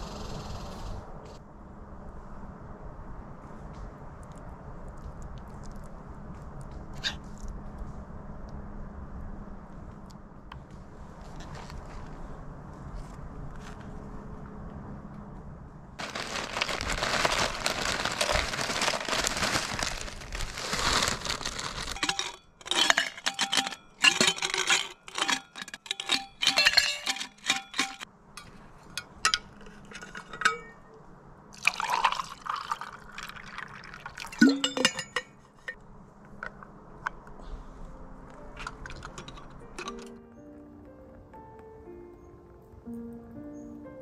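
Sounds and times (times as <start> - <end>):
cups and cookware clinking: 22.0 - 28.0, 29.2 - 30.9, 34.2 - 35.8
liquid pouring: 31.5 - 35.0.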